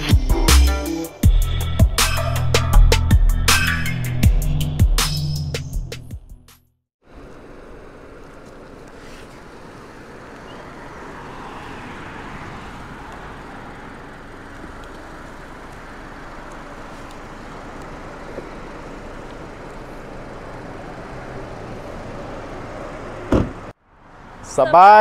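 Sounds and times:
car engine running at low speed: 0:07.0 - 0:24.4.

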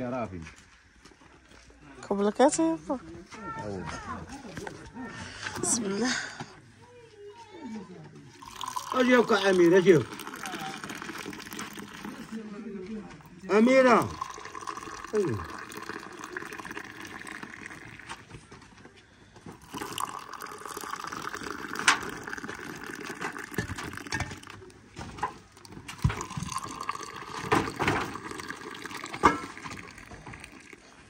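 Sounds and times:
tea pouring into glasses: 0:08.4 - 0:12.6, 0:13.2 - 0:18.4, 0:19.5 - 0:31.0.

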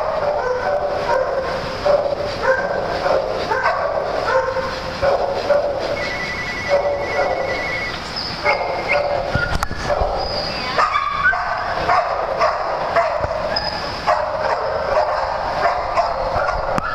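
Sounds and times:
small dogs barking and yipping: 0:00.0 - 0:16.9.

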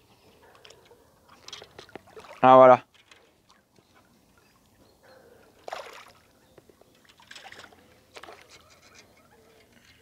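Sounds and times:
water splashing: 0:01.3 - 0:02.8, 0:05.5 - 0:08.5.

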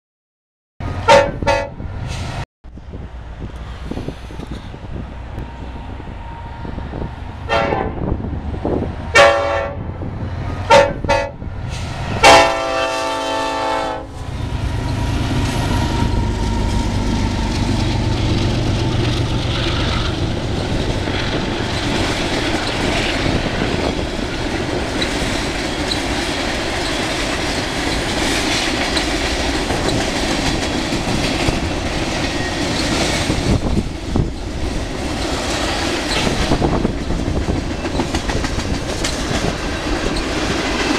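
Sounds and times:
diesel locomotive engines passing: 0:00.8 - 0:40.9
train horn blasts: 0:01.0 - 0:01.9, 0:05.4 - 0:08.1, 0:09.1 - 0:09.9, 0:10.6 - 0:11.4, 0:12.2 - 0:19.0
freight cars rolling on rails: 0:13.5 - 0:40.9.

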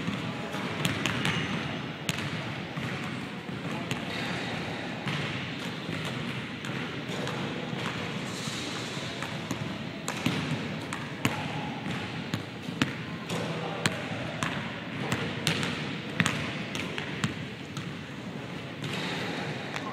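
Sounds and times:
basketballs bouncing on hardwood: 0:02.1 - 0:03.1, 0:09.2 - 0:17.9.

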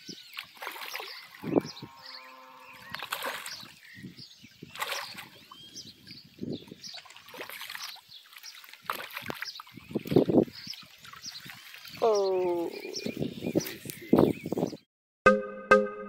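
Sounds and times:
fish splashing in water: 0:00.3 - 0:01.6, 0:02.8 - 0:03.8, 0:04.7 - 0:05.4, 0:06.9 - 0:12.4.

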